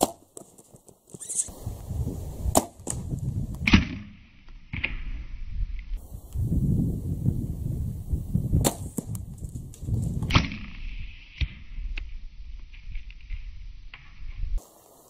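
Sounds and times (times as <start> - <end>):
arrow striking target: 0.0 - 0.2, 2.5 - 5.3, 8.6 - 9.2, 10.2 - 11.8
low rumbling handling noise: 7.4 - 10.6.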